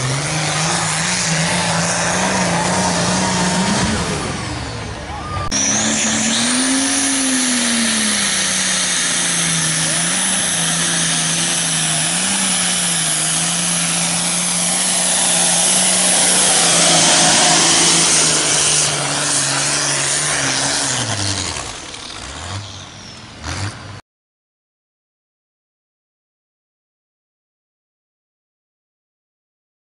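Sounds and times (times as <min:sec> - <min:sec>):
tractor diesel engine at full throttle: 0:00.0 - 0:23.9.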